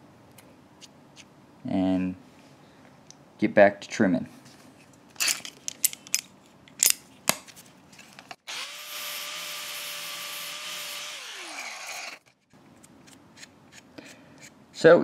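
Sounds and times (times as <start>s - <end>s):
rotary cutting tool whining: 8.5s - 12.3s.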